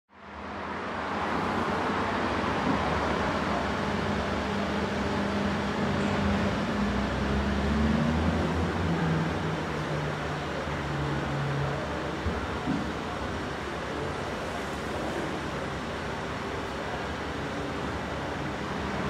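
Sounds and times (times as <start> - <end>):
street traffic hum: 0.2 - 19.0.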